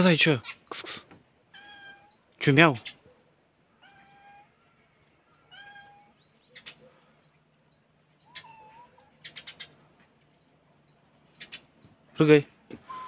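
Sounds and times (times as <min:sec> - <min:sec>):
cat meowing faintly: 0:01.5 - 0:02.1, 0:03.7 - 0:06.2, 0:08.3 - 0:09.1.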